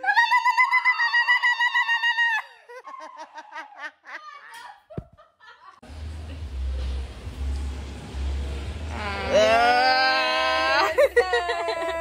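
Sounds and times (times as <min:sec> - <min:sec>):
person squealing: 0:08.9 - 0:12.0
person laughing: 0:10.8 - 0:12.0.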